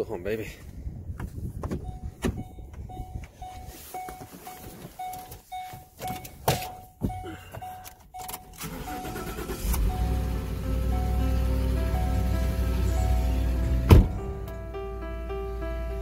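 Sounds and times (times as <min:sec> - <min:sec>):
clunks and knocks in cab: 0:01.2 - 0:03.4, 0:13.8 - 0:14.6
truck warning chime beeping: 0:01.8 - 0:16.0.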